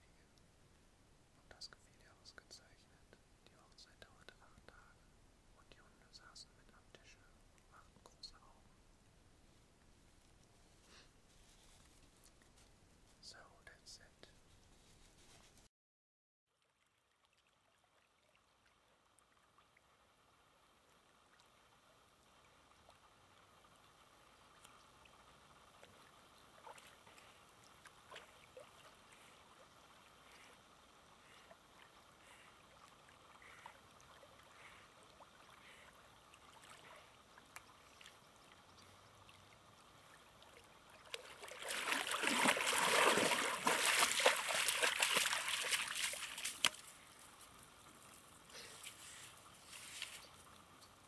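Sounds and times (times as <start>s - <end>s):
water lapping: 21.2s - 50.7s
dog paddling in water: 25.6s - 30.6s, 40.4s - 46.9s
loud crackling splashing: 41.1s - 46.8s.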